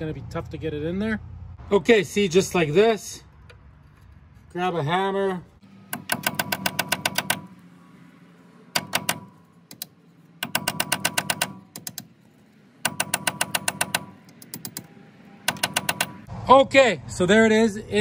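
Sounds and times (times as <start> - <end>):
hammer tapping metal bit: 5.9 - 7.5, 8.7 - 12.1, 12.8 - 14.9, 15.5 - 16.3.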